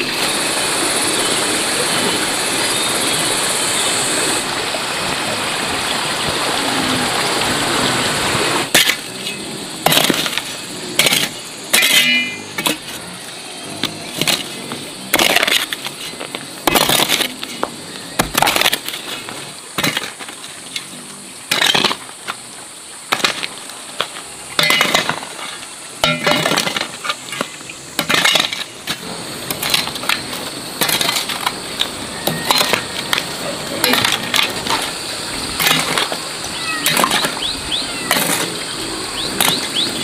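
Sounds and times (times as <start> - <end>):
steady high hiss: 0.0 - 40.0
sharp knocks and cracks: 13.8 - 20.5, 23.1 - 25.4.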